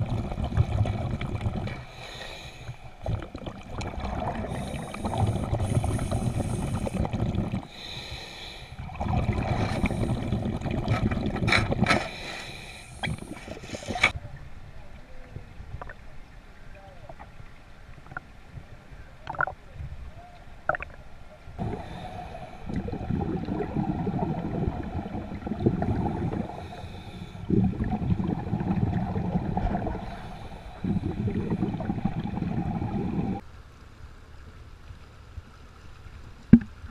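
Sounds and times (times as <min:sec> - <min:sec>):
diver exhaust bubbles rushing: 0:00.0 - 0:01.8, 0:03.0 - 0:07.7, 0:08.8 - 0:12.0, 0:21.6 - 0:33.4.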